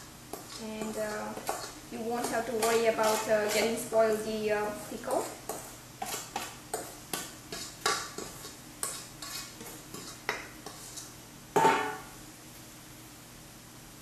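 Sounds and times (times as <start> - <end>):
metal spoon scraping steel bowl: 0.3 - 4.0, 4.7 - 12.0
steel bowl set down clank: 11.6 - 12.1.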